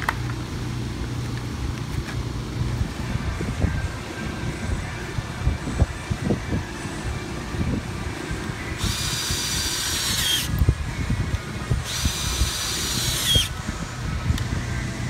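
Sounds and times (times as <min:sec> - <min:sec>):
cordless drill whining: 0:08.8 - 0:10.6, 0:11.8 - 0:13.6.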